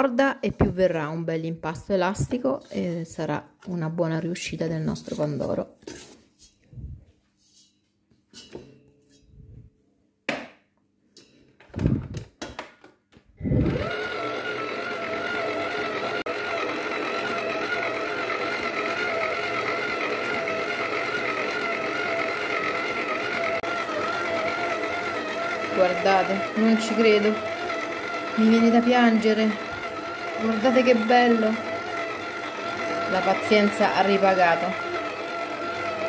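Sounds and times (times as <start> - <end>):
mixer motor whining: 13.4 - 36.0.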